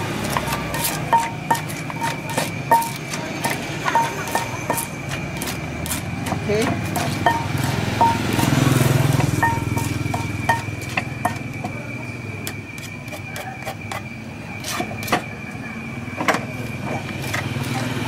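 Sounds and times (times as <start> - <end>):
wooden pestle pounding in clay mortar: 0.0 - 15.3
steady high-pitched tone: 1.1 - 5.4, 6.6 - 11.8.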